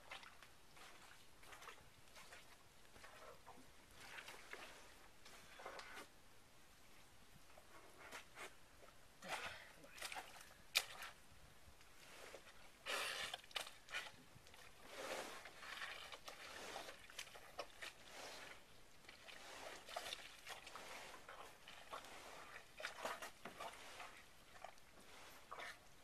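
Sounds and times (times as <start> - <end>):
pontoon scraping through mud: 12.0 - 25.9.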